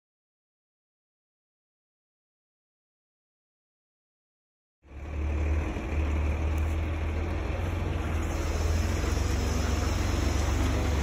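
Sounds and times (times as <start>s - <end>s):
truck engine rumbling: 4.8s - 11.0s
hiss: 8.2s - 11.0s.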